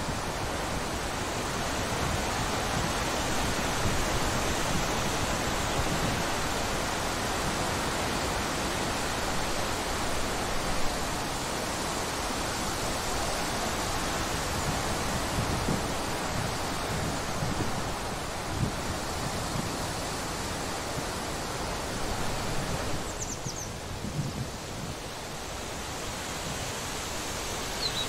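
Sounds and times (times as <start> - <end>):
wind rushing through trees: 0.0 - 28.0
wind buffeting microphone: 12.5 - 27.8.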